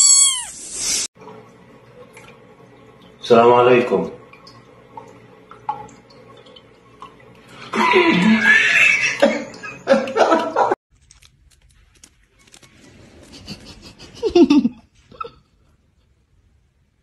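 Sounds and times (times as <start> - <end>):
person laughing: 7.7 - 10.8, 13.2 - 15.5.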